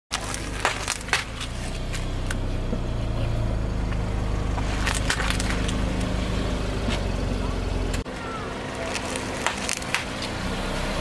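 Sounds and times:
candy shells cracking under tyre: 0.1 - 2.4, 4.6 - 5.8, 8.7 - 10.4
car engine humming: 0.1 - 11.0.

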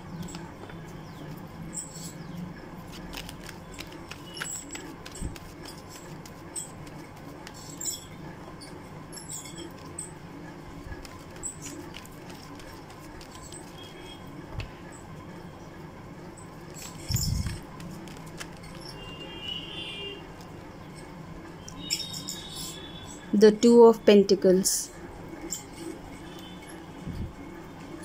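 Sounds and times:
cards being shuffled: 2.8 - 7.9, 10.8 - 14.0, 16.7 - 19.0.

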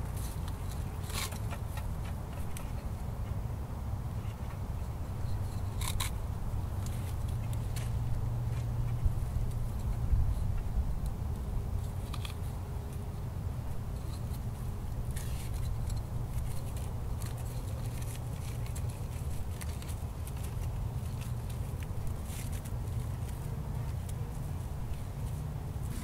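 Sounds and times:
wind rumble on microphone: 0.0 - 23.2
cord rustling in hands: 13.7 - 26.0.

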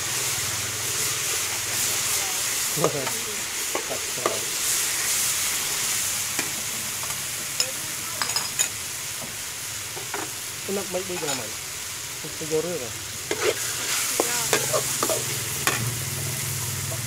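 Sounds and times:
meat sizzling in hot oil: 0.0 - 17.0
metal spatula scraping a wok: 13.2 - 15.9.

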